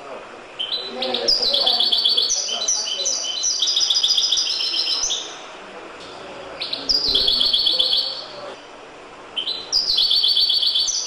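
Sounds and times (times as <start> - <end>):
goldfinch singing: 0.6 - 5.4, 6.6 - 8.4, 9.4 - 11.0.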